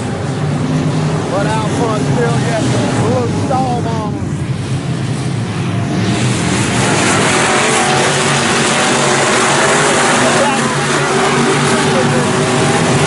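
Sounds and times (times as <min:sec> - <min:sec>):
race car engines passing: 0:00.0 - 0:13.0.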